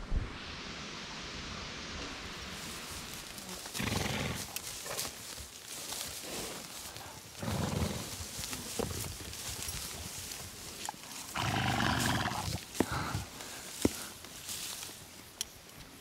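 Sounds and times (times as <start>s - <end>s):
steady rustling hiss: 0.0s - 16.0s
horse blowing: 3.4s - 5.0s, 7.4s - 9.0s, 11.2s - 13.3s.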